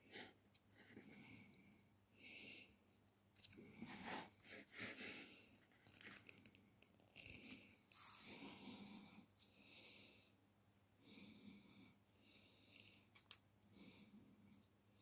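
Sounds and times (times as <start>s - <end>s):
pliers clicking and scraping wire: 3.4s - 3.6s, 13.1s - 13.4s.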